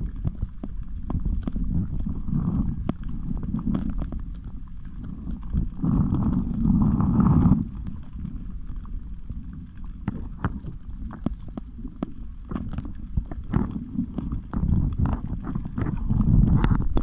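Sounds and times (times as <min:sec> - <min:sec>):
muffled underwater rumble: 0:00.0 - 0:17.0.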